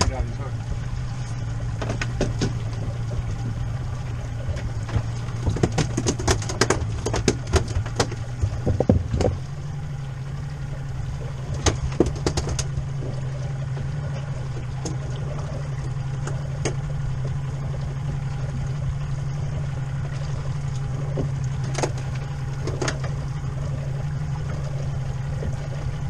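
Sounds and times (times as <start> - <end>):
outboard engine running: 0.0 - 26.0
sharp knocks: 1.8 - 2.8.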